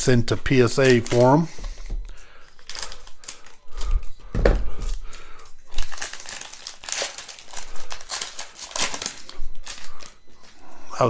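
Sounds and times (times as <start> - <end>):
plastic foil wrapper crinkling: 0.0 - 10.7
wrapper tearing: 0.6 - 1.5, 2.6 - 4.0, 5.7 - 10.2.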